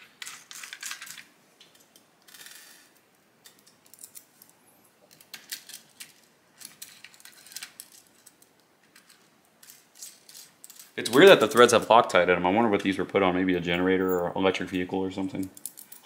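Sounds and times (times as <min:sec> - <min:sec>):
small metallic clicks and clinks: 0:15.4 - 0:16.0.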